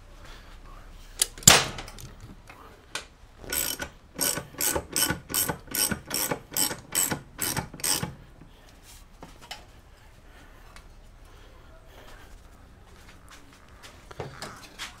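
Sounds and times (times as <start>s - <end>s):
jack ratcheting: 3.4s - 8.2s.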